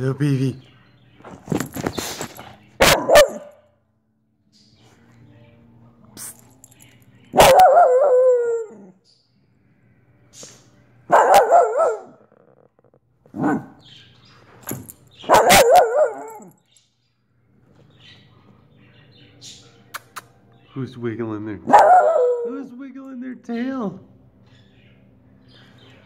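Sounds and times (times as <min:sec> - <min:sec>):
dog barking: 0:02.8 - 0:03.6, 0:07.3 - 0:08.8, 0:11.1 - 0:12.4, 0:13.3 - 0:13.8, 0:15.2 - 0:16.5, 0:21.6 - 0:22.7.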